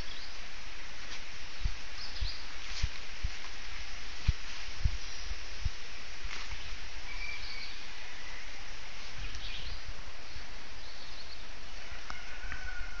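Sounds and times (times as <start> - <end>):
faint bird chirps: 1.5 - 2.5, 6.4 - 13.0.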